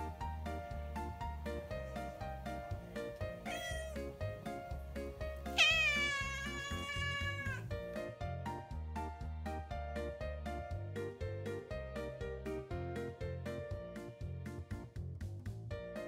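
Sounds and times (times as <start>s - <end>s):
background music: 0.0s - 16.0s
cat meowing: 3.2s - 4.2s, 5.5s - 7.7s.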